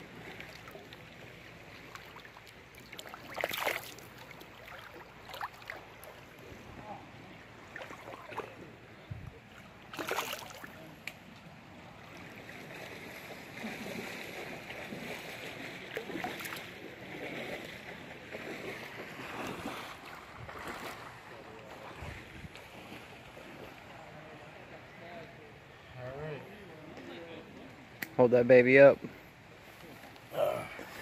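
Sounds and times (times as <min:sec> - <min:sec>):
river water running: 0:00.0 - 0:31.0
sharp splashes or knocks: 0:02.9 - 0:05.8, 0:09.9 - 0:10.7.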